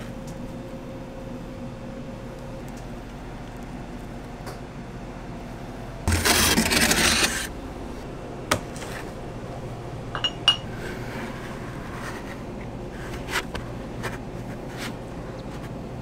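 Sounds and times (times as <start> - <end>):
plastic tub rubbing and scraping: 6.1 - 7.5.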